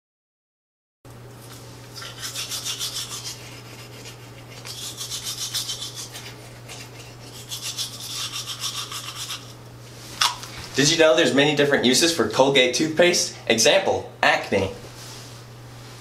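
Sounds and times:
low steady hum: 0:01.1 - 0:16.0
toothbrush scrubbing teeth: 0:01.5 - 0:09.6.

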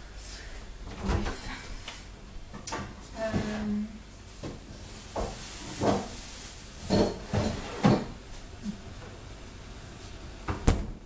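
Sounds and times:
knocks and rustles: 0:04.4 - 0:06.2
fridge door shutting: 0:10.5 - 0:11.0.

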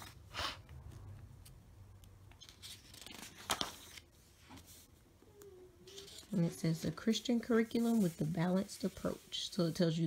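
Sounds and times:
book pages turning: 0:02.3 - 0:04.9, 0:05.9 - 0:10.0.

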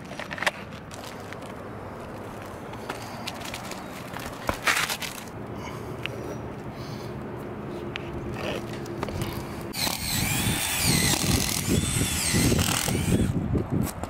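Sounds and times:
cordless drill drilling: 0:09.8 - 0:13.4.

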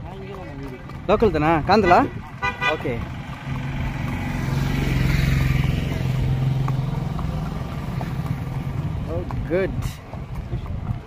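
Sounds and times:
vehicle engine passing by: 0:02.8 - 0:11.0.

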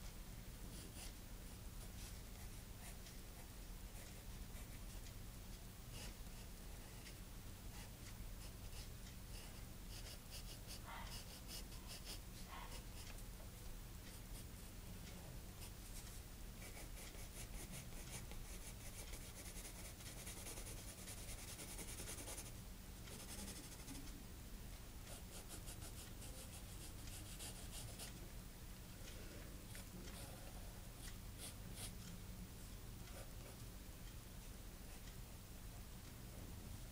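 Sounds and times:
steady low hum: 0:00.0 - 0:36.9
pencil scratching on paper: 0:00.7 - 0:01.2, 0:07.7 - 0:13.2, 0:15.6 - 0:22.5, 0:23.1 - 0:24.0, 0:25.1 - 0:28.2.

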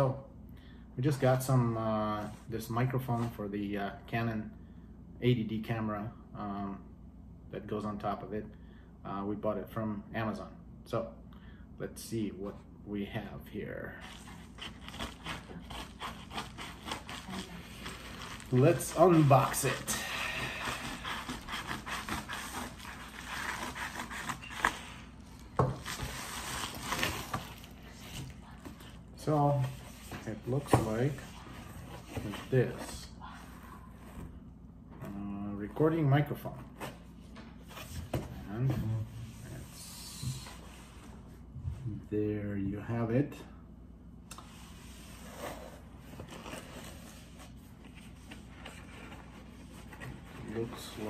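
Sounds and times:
steady low hum: 0:00.0 - 0:51.0
paper envelope crinkling: 0:14.0 - 0:19.9
packaging rustling and scraping: 0:14.0 - 0:33.1, 0:44.9 - 0:51.0.

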